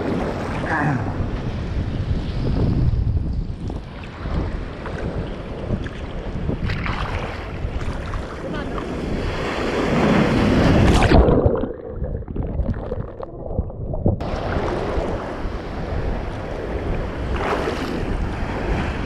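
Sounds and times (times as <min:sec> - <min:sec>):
wind buffeting microphone: 0:00.0 - 0:19.0
wave breaking: 0:06.6 - 0:19.0.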